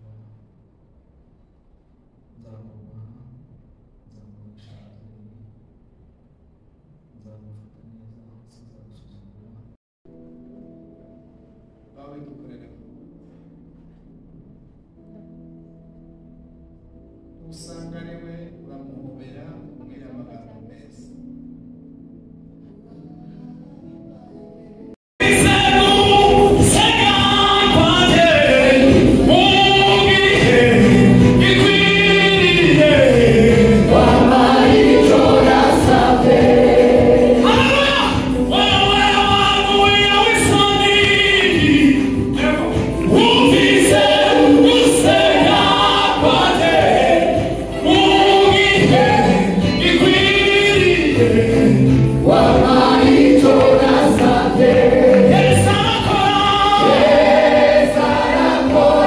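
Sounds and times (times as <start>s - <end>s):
keyboard: 10.1s - 59.0s
group of singers singing: 25.2s - 59.0s.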